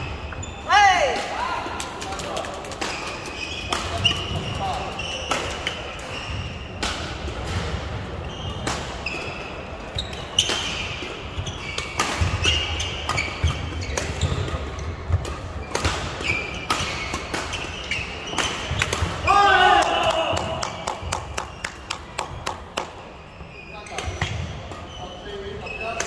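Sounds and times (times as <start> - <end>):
shoes squeaking on court floor: 0.0 - 0.7, 2.3 - 6.8, 7.4 - 19.1, 23.2 - 26.0.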